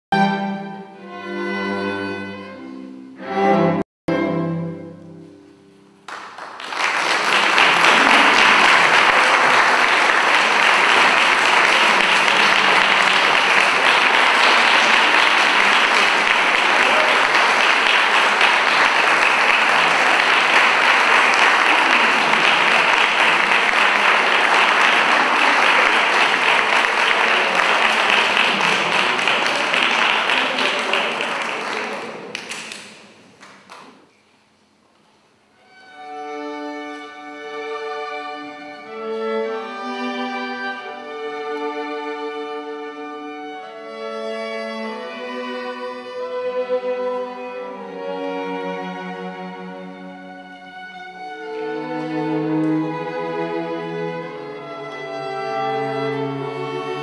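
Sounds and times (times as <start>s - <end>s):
string quartet playing chords: 0.1s - 6.0s, 7.1s - 33.2s, 35.5s - 57.0s
audience applause: 6.1s - 34.0s.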